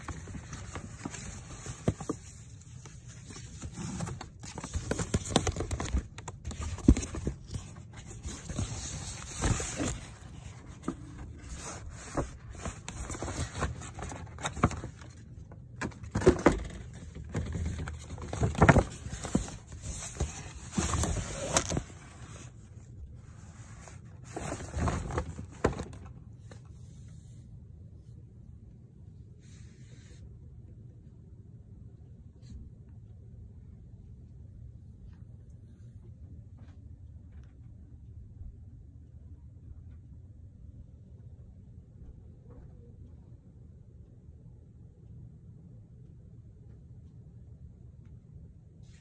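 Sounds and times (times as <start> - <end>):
paper bags rustling: 0.0 - 15.2, 15.8 - 22.5.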